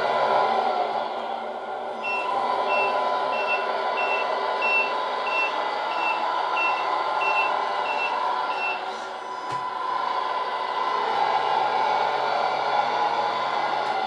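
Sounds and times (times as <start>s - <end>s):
simulated diesel engine: 0.0s - 14.0s
reversing beeper: 2.0s - 8.8s.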